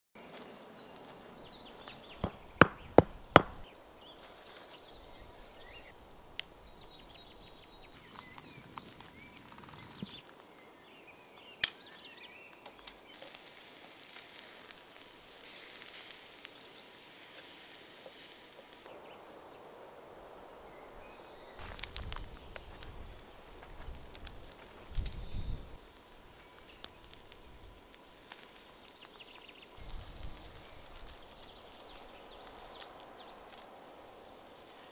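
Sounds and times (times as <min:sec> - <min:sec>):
birds chirping: 0:00.2 - 0:13.3, 0:24.8 - 0:34.9
loud sharp cracks: 0:02.2 - 0:03.7
sharp knock: 0:02.2 - 0:03.7
steaks sizzling on a grill: 0:13.0 - 0:19.0, 0:20.2 - 0:34.9.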